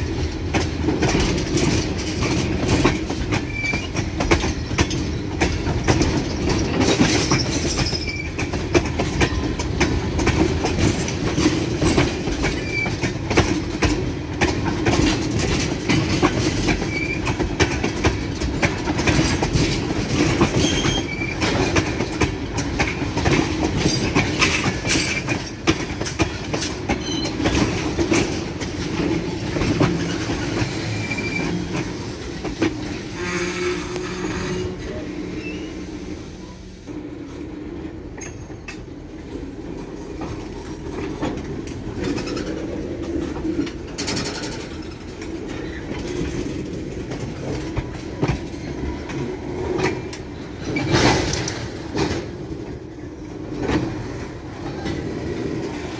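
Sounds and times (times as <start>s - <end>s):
wheels clacking over rail joints: 0.0s - 35.6s, 38.1s - 55.9s
freight train rumbling: 0.0s - 55.9s
train wheels squealing: 2.8s - 5.4s, 6.8s - 8.6s, 12.4s - 13.2s, 16.6s - 17.4s, 20.4s - 21.8s, 26.9s - 27.5s, 30.0s - 31.8s, 33.4s - 36.8s, 38.2s - 38.8s.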